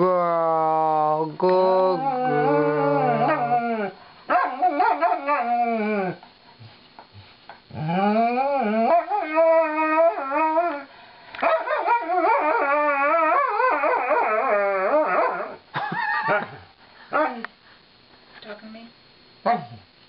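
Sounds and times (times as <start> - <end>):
dog howl-talking: 0.1 - 6.2, 7.8 - 10.9, 11.5 - 15.6.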